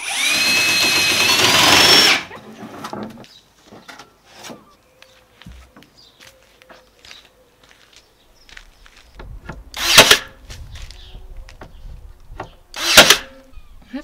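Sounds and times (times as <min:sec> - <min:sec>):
cordless drill motor whining: 0:00.0 - 0:02.3, 0:12.7 - 0:13.3.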